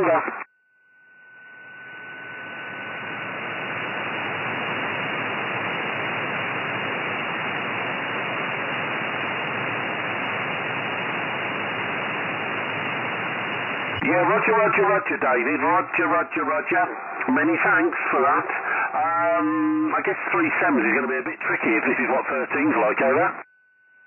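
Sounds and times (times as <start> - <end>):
radio receiver hiss: 0.0 - 0.4, 2.1 - 23.4
faint steady tone: 0.1 - 14.1.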